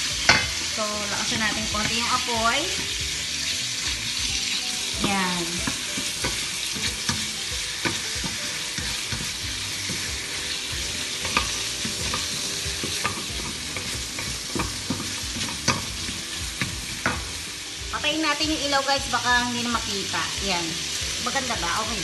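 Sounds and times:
chicken sizzling in oil: 0.0 - 22.0
wooden spatula knocking metal pan: 0.3 - 0.6, 4.1 - 17.4.

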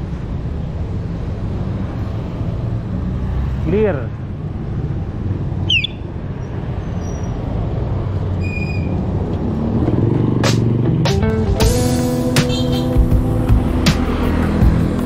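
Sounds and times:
wind and road rumble: 0.0 - 11.8, 12.4 - 15.0
vehicle engine hum: 0.0 - 15.0
short falling squeak: 8.4 - 9.0.

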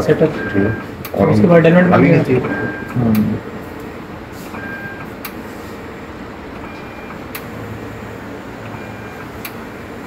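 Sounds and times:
steady mechanical hum: 0.0 - 10.0.

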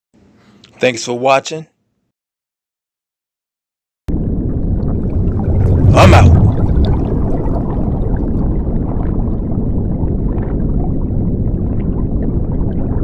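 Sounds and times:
faint bubbling: 4.1 - 13.0
low underwater rumble: 4.1 - 13.0.

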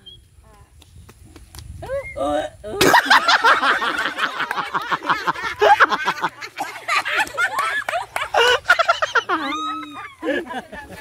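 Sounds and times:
people laughing: 2.8 - 11.0.

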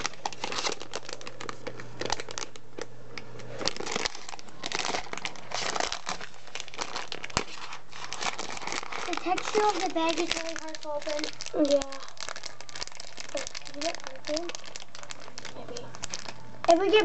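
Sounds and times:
plastic bag crinkling: 0.0 - 17.0.

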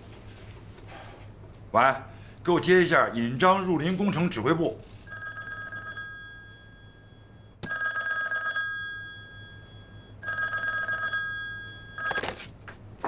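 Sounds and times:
telephone bell ringing: 5.1 - 12.4.

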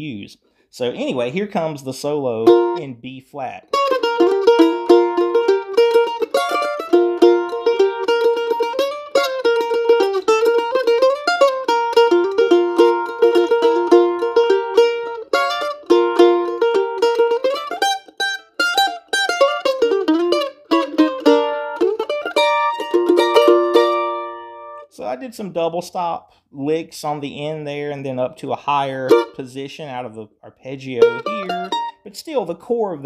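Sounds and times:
mandolin picking fast notes: 2.3 - 3.0, 3.7 - 24.9, 29.0 - 29.5, 30.9 - 32.2.

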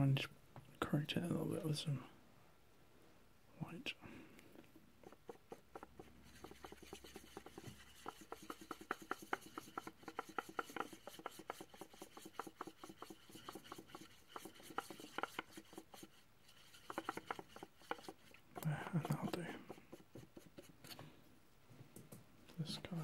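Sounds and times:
paintbrush scraping on plastic: 5.0 - 21.1.

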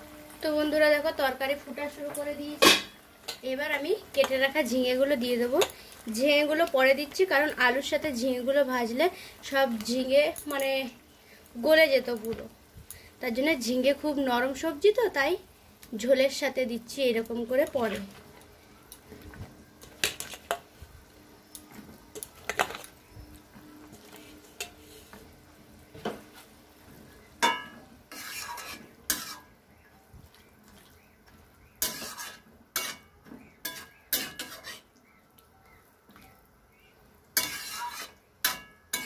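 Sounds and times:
metal spatula scraping a wok: 23.8 - 25.4, 27.4 - 29.6, 31.8 - 34.9, 37.4 - 39.0.

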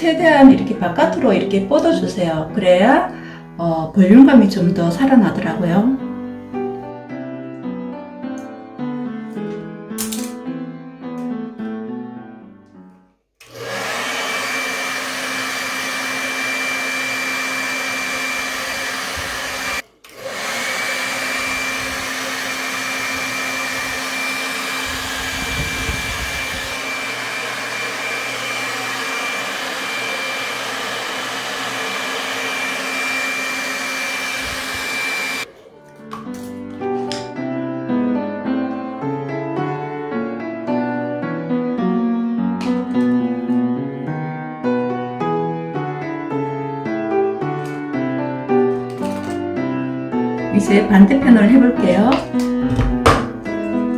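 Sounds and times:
hair dryer blowing: 13.4 - 35.5, 48.9 - 49.3.

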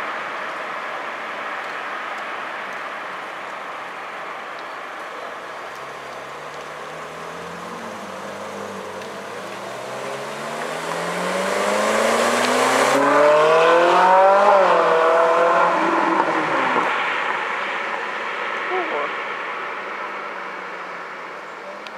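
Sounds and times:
sports car accelerating: 5.8 - 21.1.

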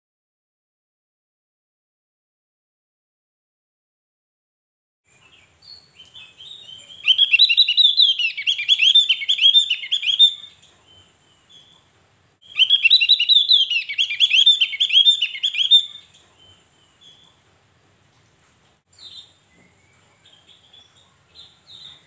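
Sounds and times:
bird singing rapid high notes: 5.6 - 10.6, 12.4 - 16.1.

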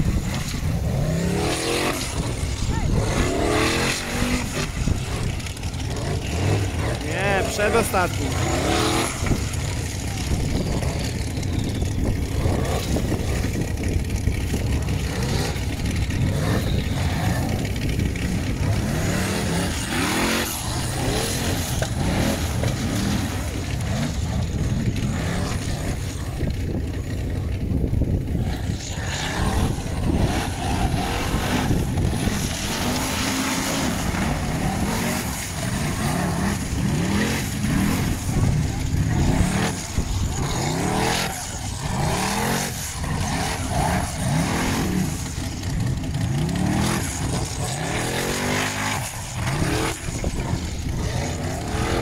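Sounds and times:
car engine revving hard: 0.9 - 9.5, 18.5 - 23.3, 28.9 - 45.2, 46.2 - 52.0.

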